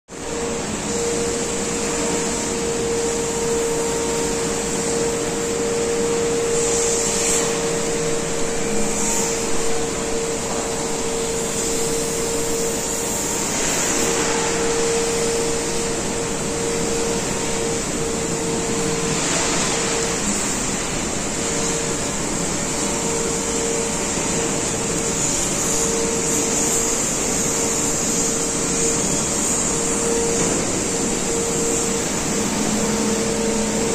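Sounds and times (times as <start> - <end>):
industrial machinery drone: 0.1 - 33.9
mid-pitched hum: 0.1 - 33.9.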